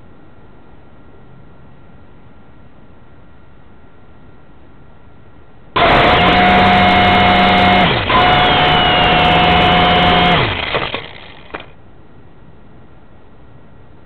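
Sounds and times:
quadcopter motors spinning: 5.8s - 11.7s
sharp ticks: 7.7s - 11.7s.

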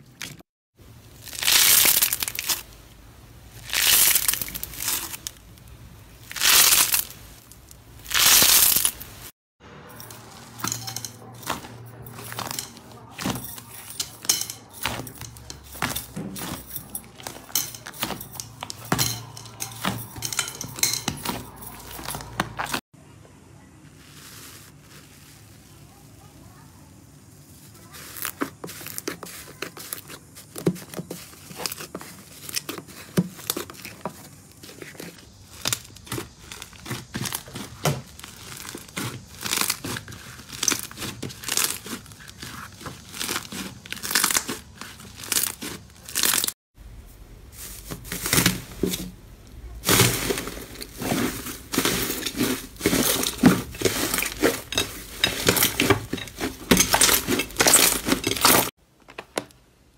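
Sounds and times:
slime crackling and popping: 1.1s - 2.7s, 3.6s - 5.6s, 6.2s - 9.3s.

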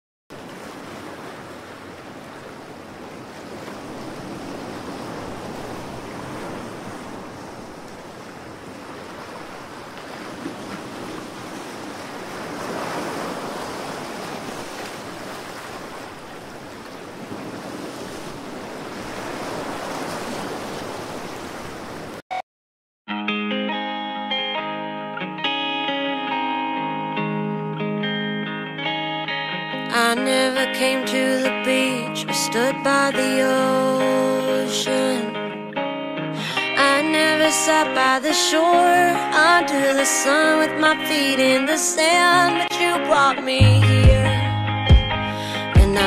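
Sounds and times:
surf washing onto rocky shore: 0.4s - 22.2s.

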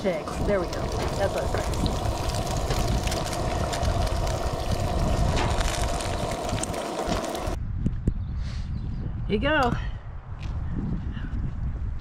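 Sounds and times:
eggs frying in a skillet: 0.0s - 7.6s
wind buffeting microphone: 0.0s - 12.0s.

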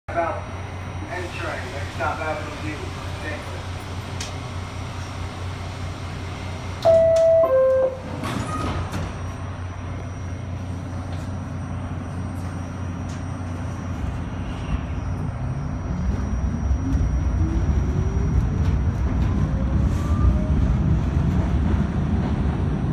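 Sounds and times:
train low hum: 0.1s - 22.9s
two-tone descending door chime: 6.8s - 8.7s.

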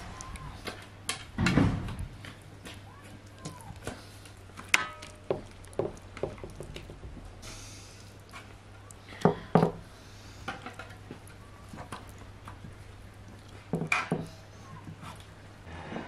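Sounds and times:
thump: 1.4s - 2.0s.

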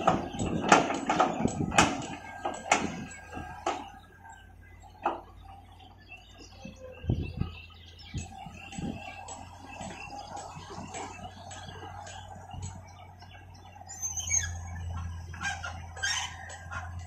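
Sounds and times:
excavator metallic knocks: 0.0s - 4.0s
engine hum: 0.0s - 17.0s
small birds chirping: 0.0s - 17.0s.

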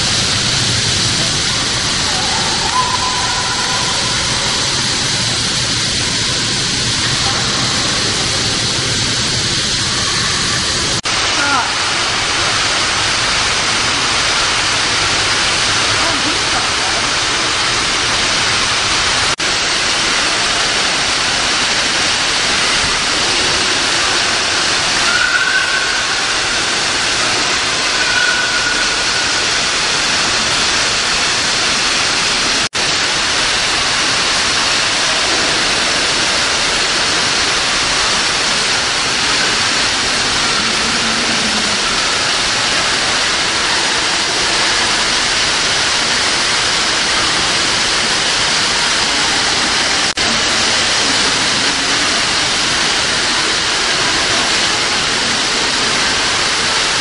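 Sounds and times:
loud steady rushing noise: 0.0s - 57.0s
faint high calls: 2.0s - 4.9s, 24.9s - 29.9s.

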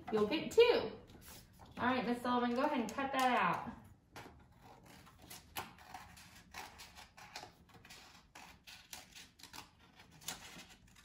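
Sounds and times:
scissors snipping paper: 4.2s - 11.0s.

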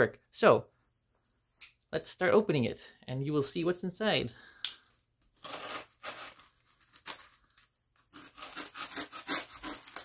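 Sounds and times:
plastic wrap and tape tearing: 5.3s - 10.0s.

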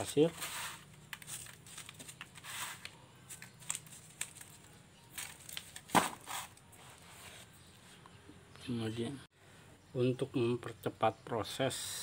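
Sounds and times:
gritty sand scraping: 0.0s - 2.9s
thin plastic crinkling: 0.4s - 6.6s.

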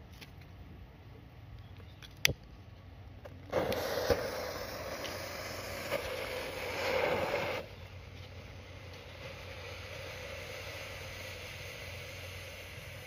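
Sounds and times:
firecracker hissing: 3.4s - 13.0s
firecracker pop: 3.5s - 7.6s.

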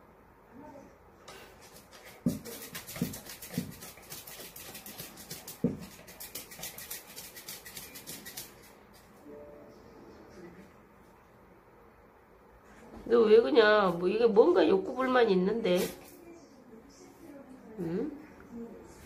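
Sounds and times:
dog bumping against a wall: 5.5s - 6.0s.

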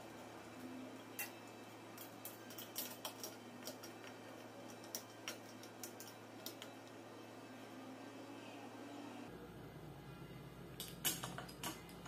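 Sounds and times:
metal parts clicking and tapping: 1.2s - 6.8s, 10.8s - 12.0s.

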